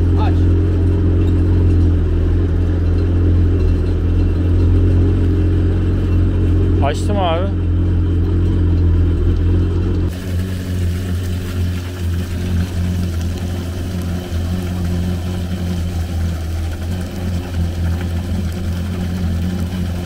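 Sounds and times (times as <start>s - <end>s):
jet ski engine idling: 10.1s - 20.0s.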